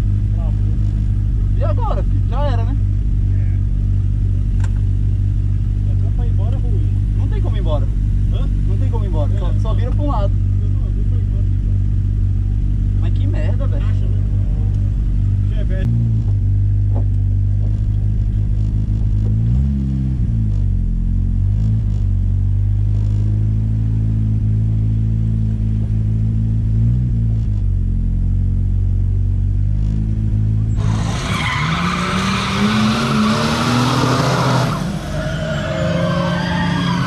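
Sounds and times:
car engine revving: 0.0s - 37.0s
tires squealing and skidding: 30.7s - 37.0s.

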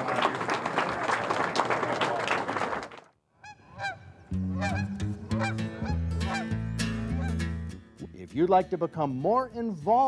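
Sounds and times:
goose honking: 3.4s - 7.6s
low music notes: 4.3s - 9.5s.

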